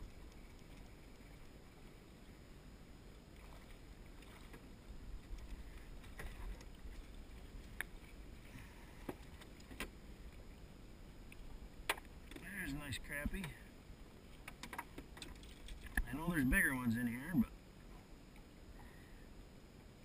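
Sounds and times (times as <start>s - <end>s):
water lapping: 0.0s - 16.6s
wind: 0.0s - 20.0s.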